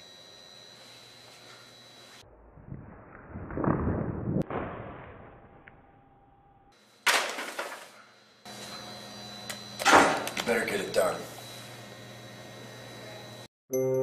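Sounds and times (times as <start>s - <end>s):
sudden crash: 2.5s - 6.2s
books falling on tiled floor: 7.0s - 8.0s.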